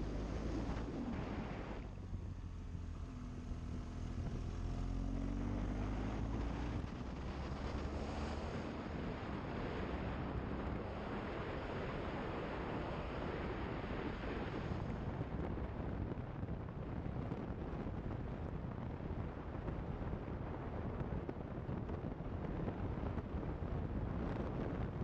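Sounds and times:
wind rushing over microphone: 0.0s - 25.0s.

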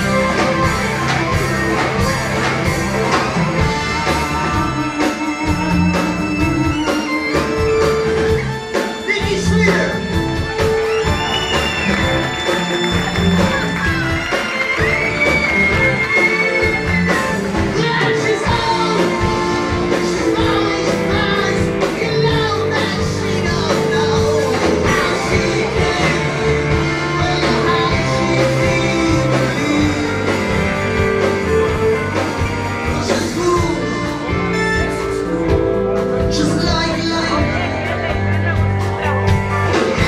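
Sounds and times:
rock band playing live: 0.0s - 40.0s
person singing: 15.7s - 40.0s.

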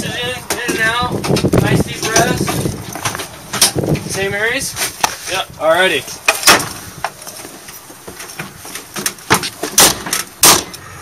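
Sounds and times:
loud clunks: 6.3s - 6.8s, 8.4s - 10.9s.

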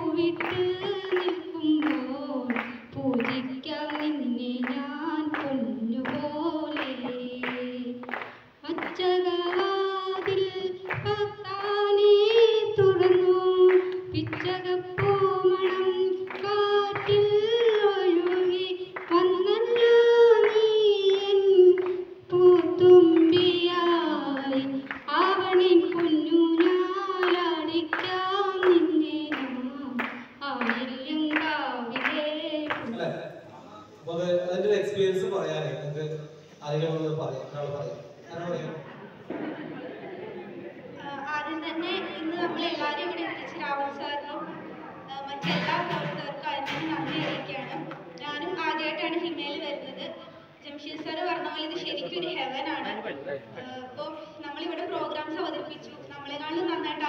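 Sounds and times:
woman singing: 0.0s - 32.8s
hands clapping: 0.2s - 11.8s, 12.9s - 23.6s, 24.2s - 33.0s, 45.4s - 48.3s.

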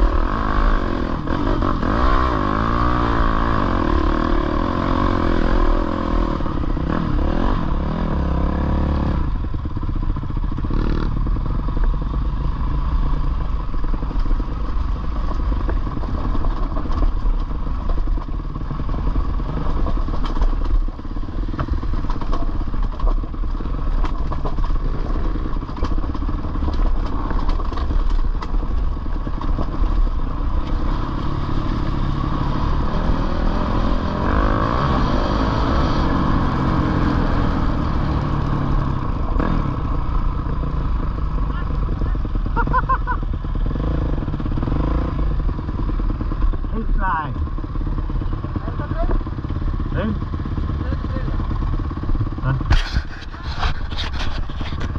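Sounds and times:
dirt bike engine revving: 0.0s - 9.4s, 30.3s - 40.2s, 41.6s - 53.8s
bike rattling over stones: 13.8s - 30.6s, 52.2s - 54.9s.

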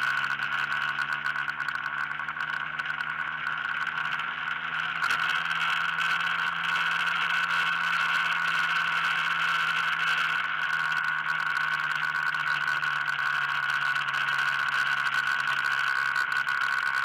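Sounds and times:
vehicle engine running: 0.0s - 17.0s
wind and road rush: 0.0s - 17.0s.

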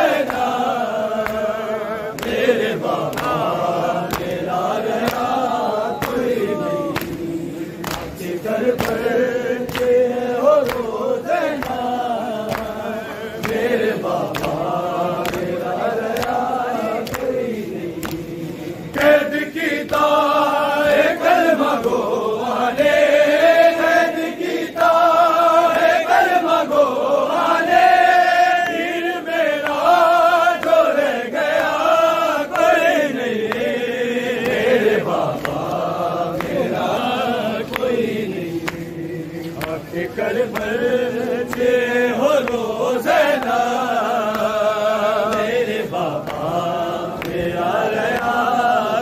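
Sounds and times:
men chanting a lament: 0.0s - 49.0s
chest-beating slaps: 2.2s - 20.3s, 32.5s - 40.8s.

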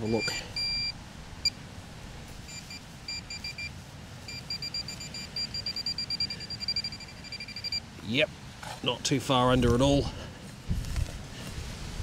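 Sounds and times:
high-pitched pinpointer beeps: 0.0s - 1.6s, 2.5s - 3.7s, 4.3s - 7.9s.

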